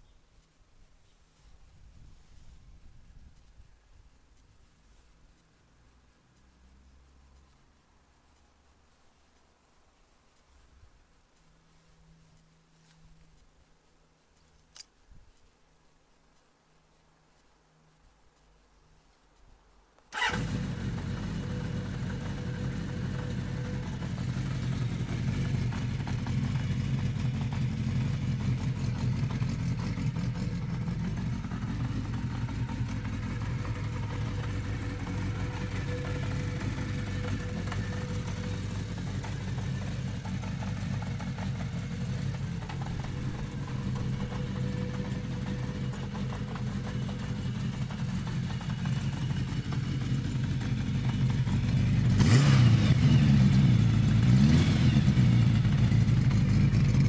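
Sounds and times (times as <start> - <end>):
single click: 14.4 - 15.5
motorcycle engine idling: 20.1 - 57.0.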